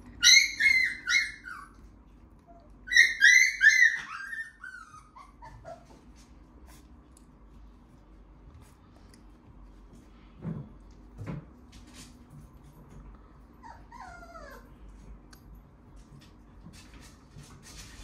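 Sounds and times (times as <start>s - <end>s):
puppy whimpering: 0.1s - 6.3s, 13.6s - 14.8s.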